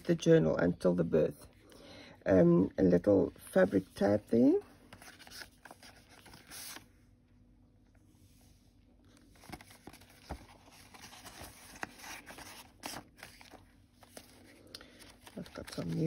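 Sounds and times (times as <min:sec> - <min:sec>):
paper rustling and sliding: 0:04.9 - 0:06.9, 0:09.1 - 0:16.0.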